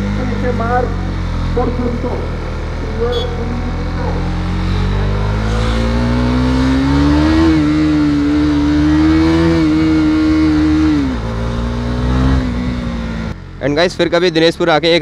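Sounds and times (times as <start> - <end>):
motorcycle engine accelerating: 0.0 - 14.8.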